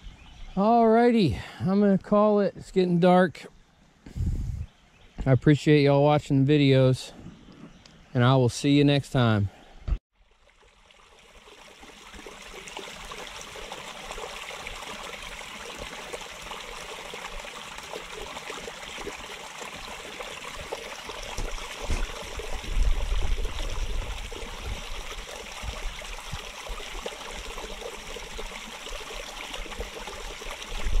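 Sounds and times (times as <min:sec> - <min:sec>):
water trickling over rocks: 0:10.1 - 0:31.0.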